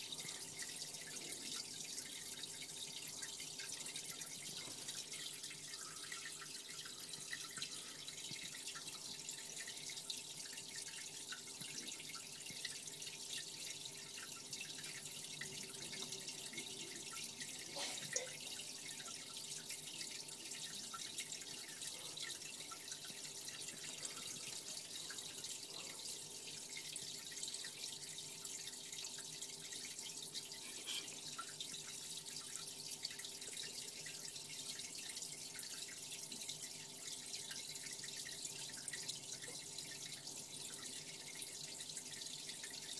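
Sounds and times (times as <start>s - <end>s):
aquarium water trickling and dripping: 0.0s - 42.9s
faint steady hum: 0.0s - 42.9s.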